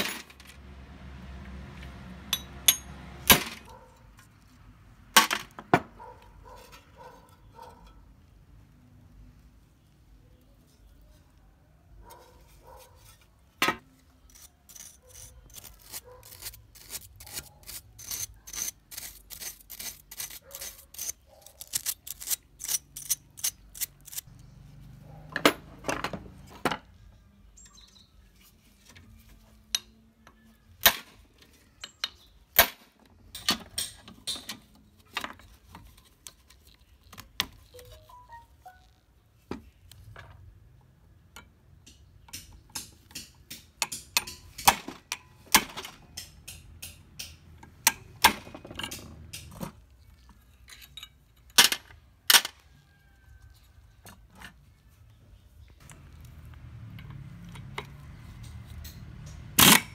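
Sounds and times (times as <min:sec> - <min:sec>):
metallic tapping on engine parts: 0:02.3 - 0:03.6
sharp clicks and knocks: 0:41.4 - 0:49.7.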